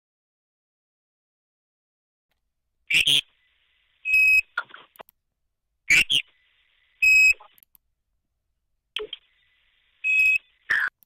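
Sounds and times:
garbled robotic voice fragments: 0:10.6 - 0:11.0.

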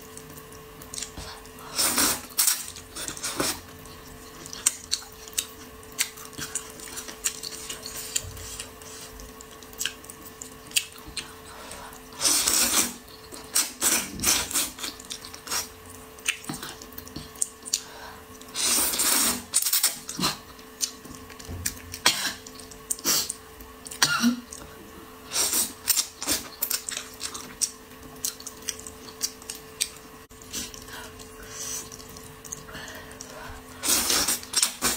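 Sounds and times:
faint steady hum: 0:00.0 - 0:34.9
wet mouth clicks and chewing: 0:16.2 - 0:17.9.

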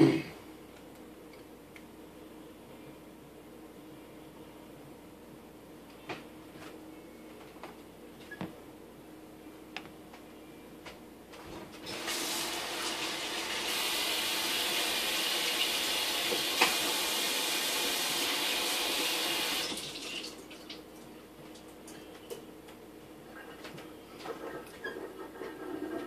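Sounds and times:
water running: 0:11.8 - 0:22.0.

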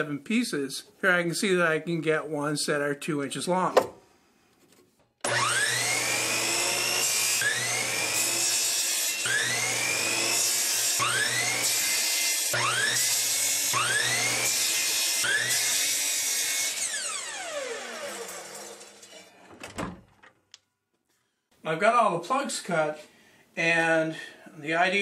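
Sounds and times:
saw motor whine: 0:05.2 - 0:11.8, 0:16.7 - 0:19.1
miter saw cutting wood: 0:05.2 - 0:19.3.

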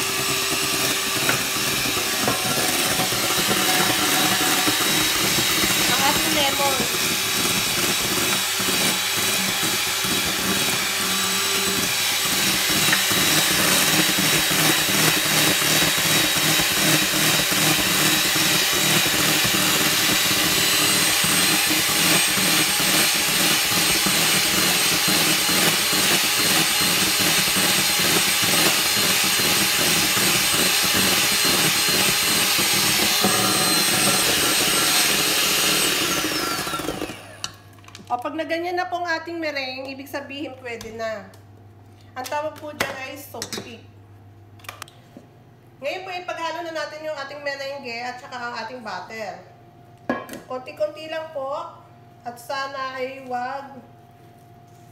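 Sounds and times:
electric hand mixer whining: 0:00.0 - 0:37.7.

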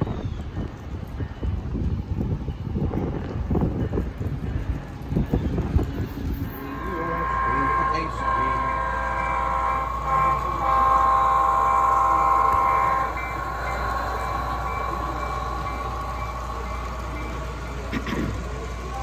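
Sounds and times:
model train running noise: 0:00.0 - 0:19.0
model train horn blasts: 0:06.6 - 0:19.0.

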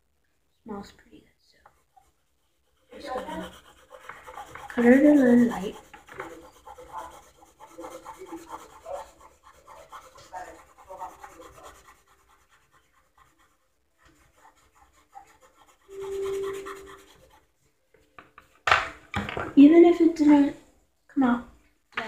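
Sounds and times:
colored pencil scratching on paper: 0:01.5 - 0:17.6.

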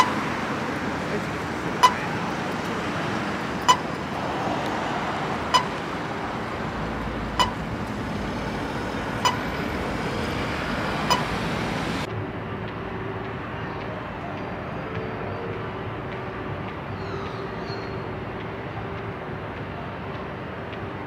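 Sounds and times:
crossing button locator beep: 0:00.0 - 0:00.8, 0:01.7 - 0:04.6, 0:05.4 - 0:06.2, 0:07.0 - 0:11.6
road traffic: 0:00.0 - 0:21.0.

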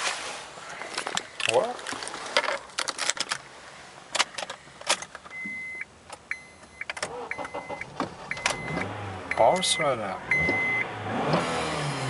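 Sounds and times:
high electronic dashboard beeps: 0:05.3 - 0:10.9.

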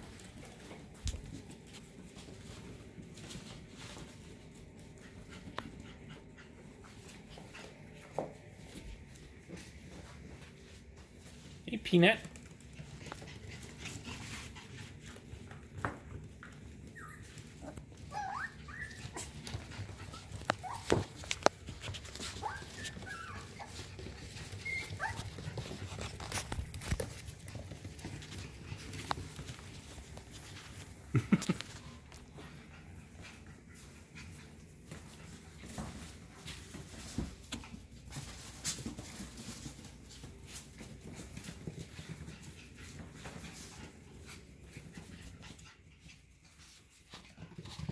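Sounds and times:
paws clicking on tiles: 0:00.0 - 0:11.6, 0:12.2 - 0:47.9
puppy sounds: 0:12.3 - 0:47.9
puppies yipping and whining: 0:16.7 - 0:21.2, 0:22.2 - 0:25.5.

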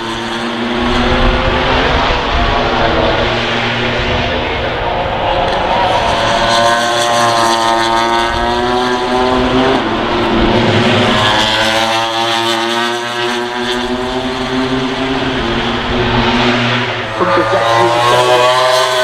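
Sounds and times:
racing motorcycles passing at speed: 0:00.0 - 0:19.0.

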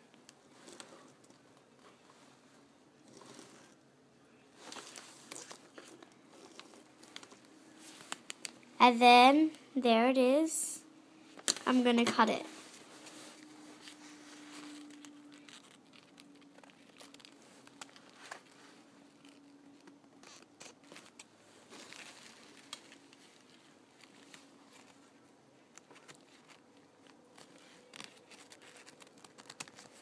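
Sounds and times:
paper rustling: 0:11.7 - 0:19.4, 0:25.7 - 0:30.0.

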